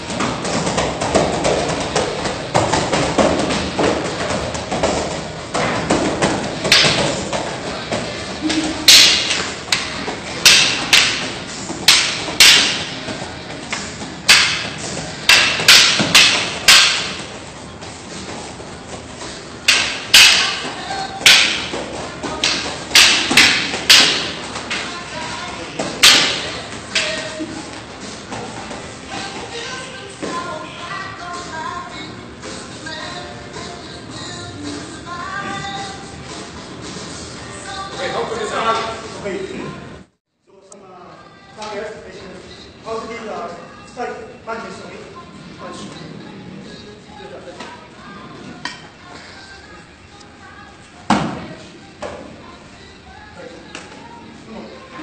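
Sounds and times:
background music: 0.0s - 55.0s
wooden sticks clacking and thudding: 0.1s - 17.4s, 19.6s - 25.0s, 25.8s - 28.8s.

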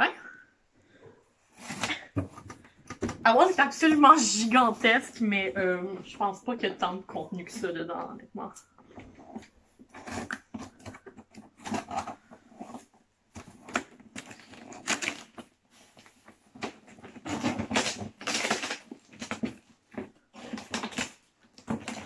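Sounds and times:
cardboard rustling and scraping: 1.4s - 6.2s, 8.8s - 22.0s
scissors slitting packing tape: 13.7s - 15.4s, 17.2s - 19.4s.

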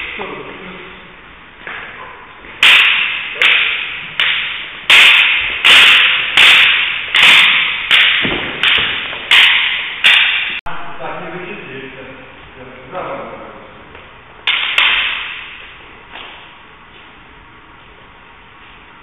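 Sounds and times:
sticks clacking together: 2.6s - 10.6s.

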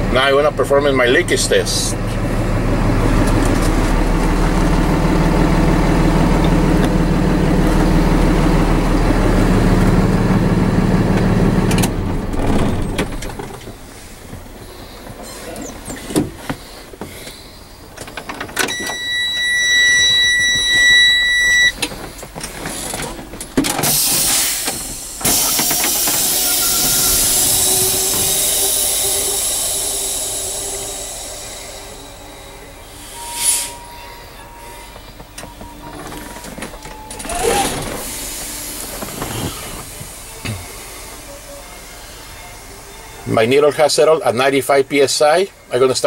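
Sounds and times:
diesel truck engine idling: 0.0s - 35.9s, 36.5s - 46.0s
dashboard buzzer tone: 18.7s - 21.8s
compressed air hiss: 23.8s - 33.8s, 38.0s - 41.2s.

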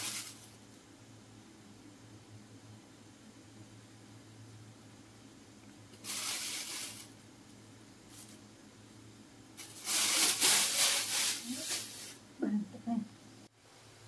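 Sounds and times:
plastic bag crinkling: 0.0s - 0.5s, 6.0s - 7.2s, 9.6s - 12.2s
low steady hum: 0.0s - 10.0s, 11.4s - 14.0s.

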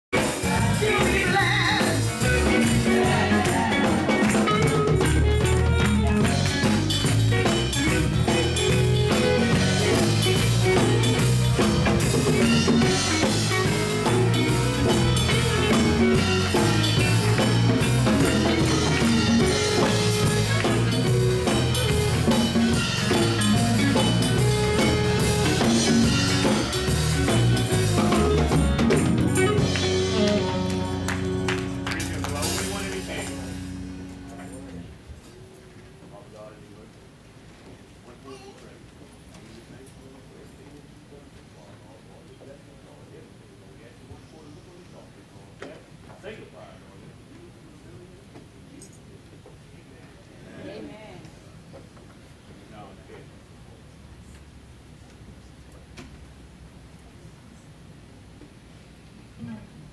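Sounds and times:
drums: 0.0s - 36.1s
voices singing: 0.2s - 4.7s
electric bass line: 0.2s - 35.2s.

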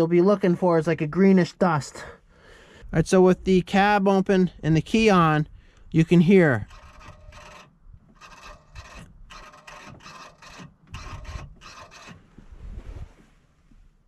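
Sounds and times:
electric actuators whirring: 6.6s - 12.2s.

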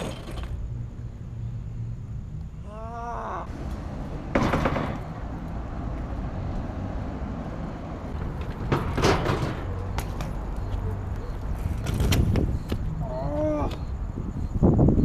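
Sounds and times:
bike rolling over pavement: 0.0s - 0.9s, 3.5s - 13.0s
bike hitting wooden box: 4.3s - 5.1s, 8.2s - 10.4s.

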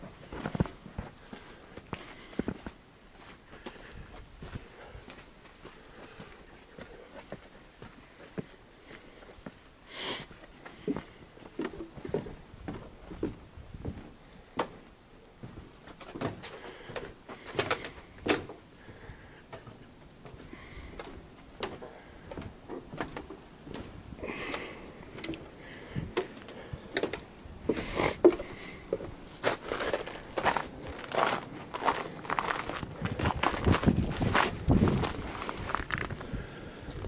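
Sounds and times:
footsteps on wooden boards: 10.3s - 36.3s.

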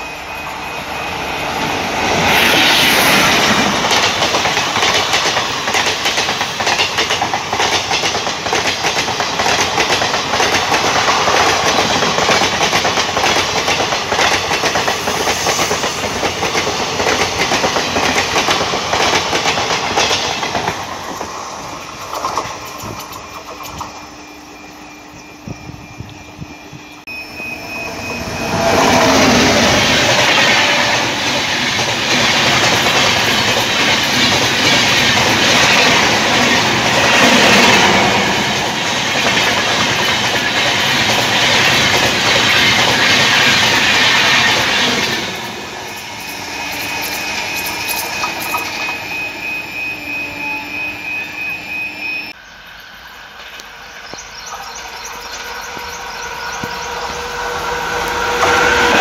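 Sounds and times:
train wheels rushing on rail: 0.0s - 59.0s
wheels clicking over rail joints: 3.7s - 24.0s.

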